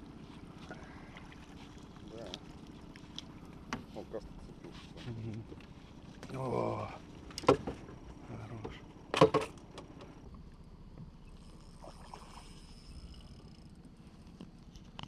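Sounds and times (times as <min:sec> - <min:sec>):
faint high whine: 0:00.0 - 0:15.0
knocks and clatter on boat: 0:03.6 - 0:06.4, 0:07.2 - 0:10.2.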